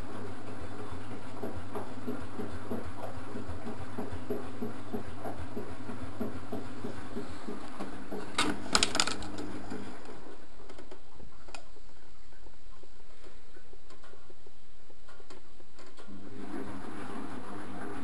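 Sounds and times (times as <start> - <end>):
washing machine drum motor humming: 0.0 - 18.0
clicks and knocks: 7.7 - 9.8.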